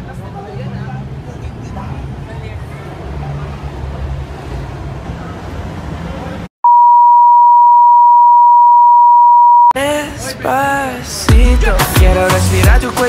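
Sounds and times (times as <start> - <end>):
low traffic rumble: 0.0 - 6.5.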